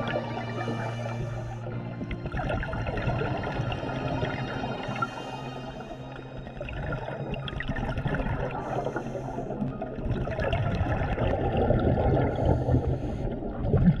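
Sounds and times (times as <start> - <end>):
underwater bubbling and gurgling: 0.0 - 14.0.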